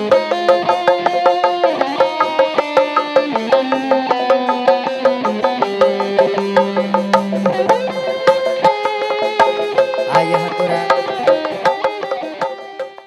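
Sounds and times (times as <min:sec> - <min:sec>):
drums beating quick rhythm: 0:00.0 - 0:13.0
held melody line: 0:03.4 - 0:12.1.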